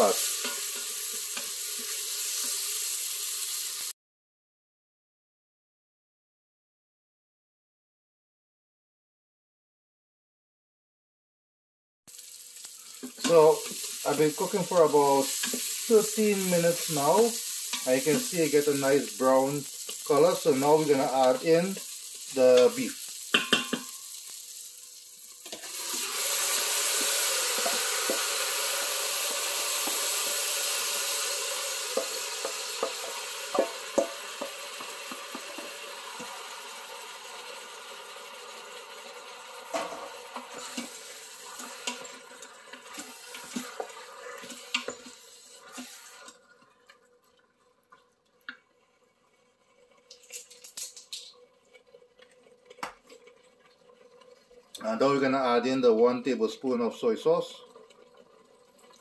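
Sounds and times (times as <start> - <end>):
meat sizzling in hot oil: 0.0 - 4.0, 12.1 - 46.5, 50.0 - 55.5
wooden spoon scraping metal pot: 39.7 - 47.0.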